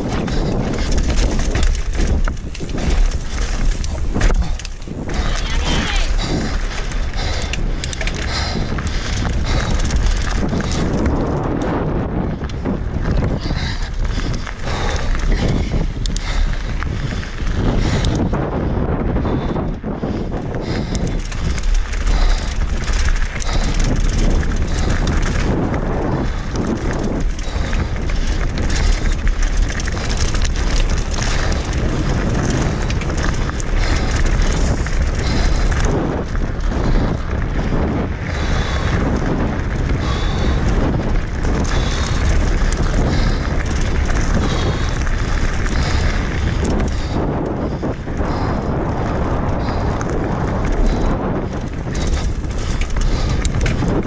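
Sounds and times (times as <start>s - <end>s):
tyres crunching over stones: 0.0s - 11.4s
bike rattling and knocking: 0.0s - 54.0s
wind rumble on microphone: 0.0s - 54.0s.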